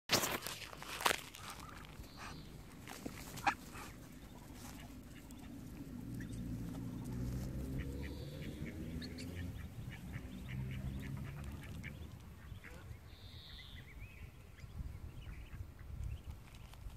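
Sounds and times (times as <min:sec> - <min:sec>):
ducks calling: 0:01.3 - 0:14.7.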